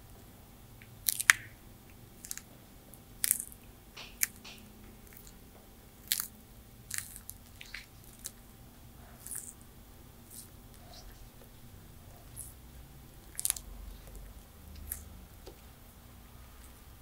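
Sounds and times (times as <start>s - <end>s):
tortoise crunching food: 0.8s - 15.7s.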